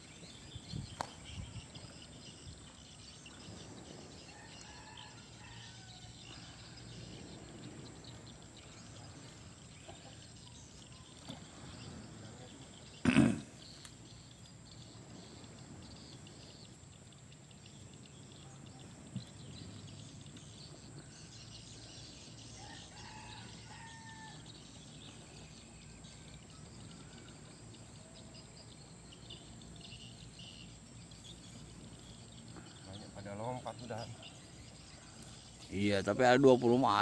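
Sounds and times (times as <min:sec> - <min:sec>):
insects chirring: 0:00.0 - 0:37.0
distant rooster crowing: 0:04.2 - 0:06.7, 0:22.5 - 0:24.6.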